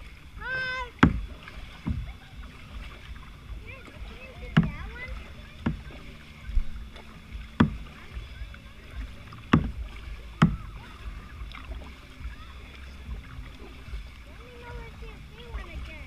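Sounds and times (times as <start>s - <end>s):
boat on water: 0.0s - 16.0s
sharp knocks on plastic kayak: 1.0s - 2.2s, 4.4s - 6.0s, 7.4s - 8.2s, 9.0s - 10.9s.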